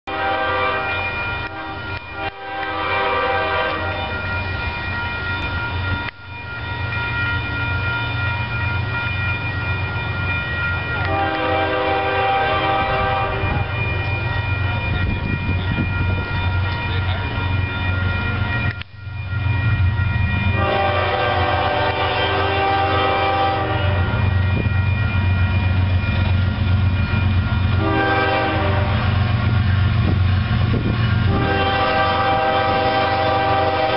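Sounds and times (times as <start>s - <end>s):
train engines rumbling: 0.0s - 33.9s
locomotive air horn blasts: 0.1s - 4.2s, 11.0s - 13.8s, 20.6s - 24.3s, 27.7s - 29.3s, 31.2s - 33.9s.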